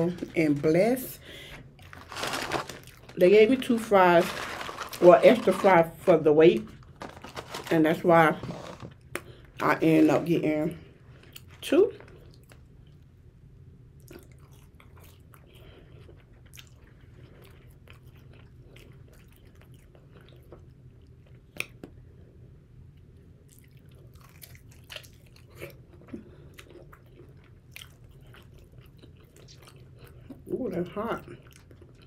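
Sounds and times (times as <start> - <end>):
chewing crispy fried food: 1.8 - 6.1, 11.1 - 13.1, 14.0 - 22.0, 22.9 - 32.0.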